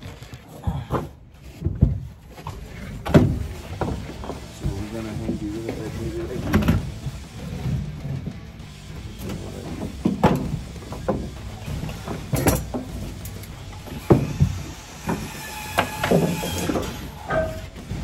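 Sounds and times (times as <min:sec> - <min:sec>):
knocks and clatter of pipe work: 0:00.0 - 0:18.0.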